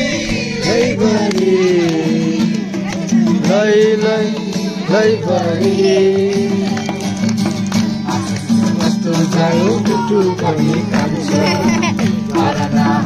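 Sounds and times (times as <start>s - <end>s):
person singing: 0.0s - 7.1s, 8.5s - 13.0s
steady percussive beat: 0.0s - 13.0s
sustained instrumental accompaniment: 0.0s - 13.0s.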